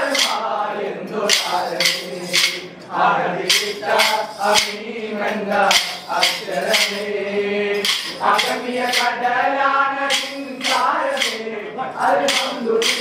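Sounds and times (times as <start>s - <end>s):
wooden sticks clacking: 0.0s - 0.4s, 1.2s - 2.7s, 3.4s - 4.8s, 5.6s - 7.2s, 7.8s - 9.2s, 10.0s - 13.0s
people singing: 0.0s - 13.0s.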